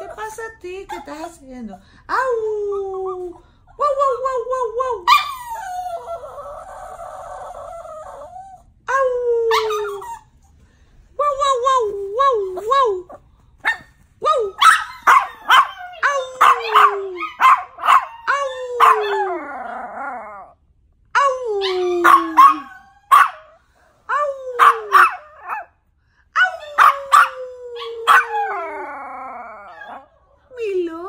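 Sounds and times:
dog yapping: 0:14.6 - 0:19.2, 0:21.6 - 0:23.6, 0:24.6 - 0:25.7, 0:26.4 - 0:27.4, 0:28.0 - 0:28.6
dog howling: 0:26.4 - 0:30.2.

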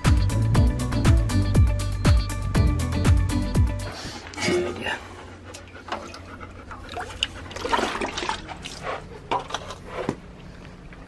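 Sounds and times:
water sloshing and splashing: 0:05.5 - 0:11.0.

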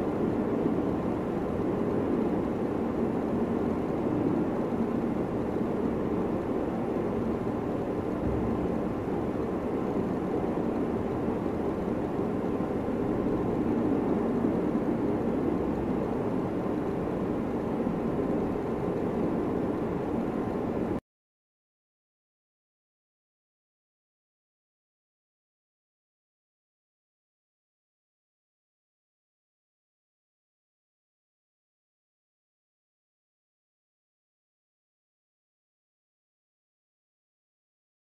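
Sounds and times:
steady droning background noise: 0:00.0 - 0:21.0.

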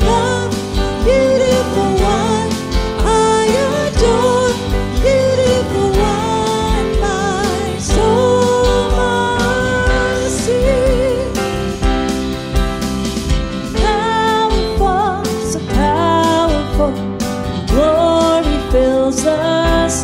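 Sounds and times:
woman and man singing: 0:00.0 - 0:11.5, 0:17.7 - 0:20.0
acoustic guitar: 0:00.0 - 0:20.0
drums keeping a steady beat: 0:00.0 - 0:20.0
electric bass: 0:00.0 - 0:20.0
keyboard: 0:00.0 - 0:20.0.

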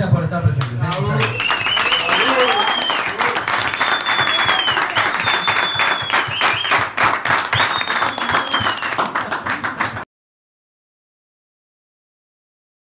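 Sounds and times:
crowd applauding and cheering: 0:00.6 - 0:10.1
long whistles: 0:01.2 - 0:06.9, 0:07.5 - 0:09.0.

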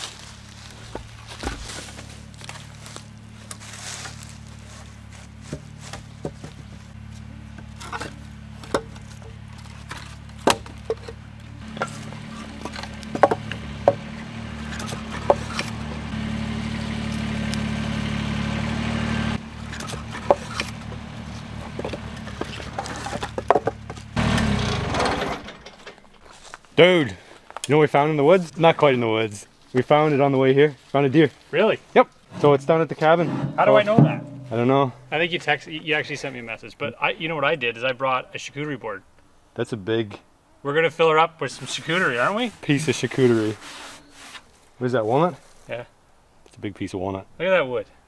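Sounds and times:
firewood knocking and clattering: 0:07.6 - 0:16.0, 0:19.5 - 0:26.4
steady low hum: 0:32.2 - 0:35.8.

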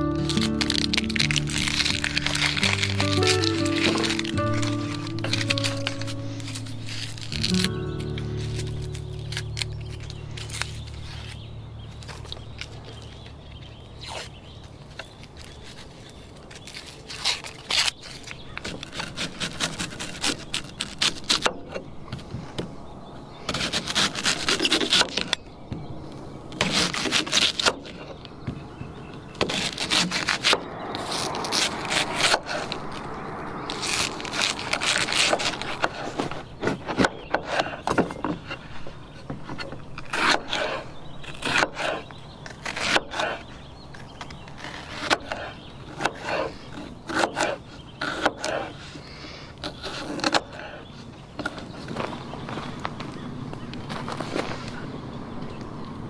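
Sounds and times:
onion skin peeling: 0:00.0 - 0:21.7, 0:23.5 - 0:25.4, 0:26.6 - 0:28.0, 0:29.4 - 0:38.9
vegetable scraping and rubbing: 0:00.0 - 0:21.8, 0:23.5 - 0:25.4, 0:26.5 - 0:28.2, 0:29.4 - 0:49.0, 0:49.6 - 0:52.7.

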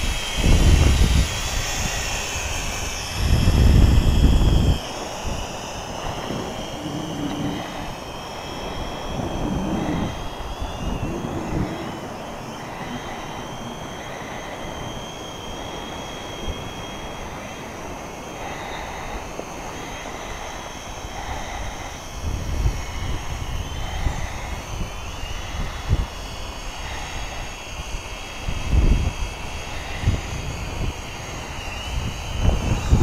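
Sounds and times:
drone propellers whining: 0:00.0 - 0:33.0
wind rumble on microphone: 0:00.0 - 0:33.0.

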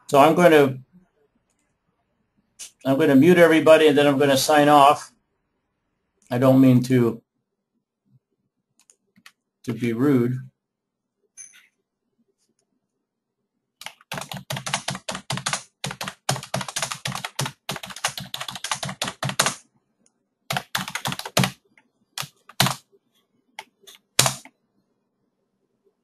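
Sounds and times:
typing on computer keyboard: 0:13.8 - 0:19.6, 0:20.5 - 0:21.6, 0:22.2 - 0:22.8, 0:23.6 - 0:24.5.

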